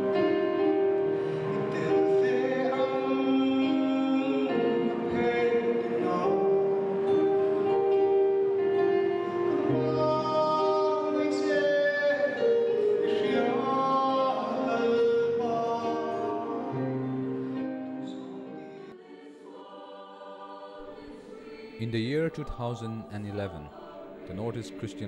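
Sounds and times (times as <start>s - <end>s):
man singing: 1.6s - 6.8s, 9.5s - 17.0s, 21.7s - 25.0s.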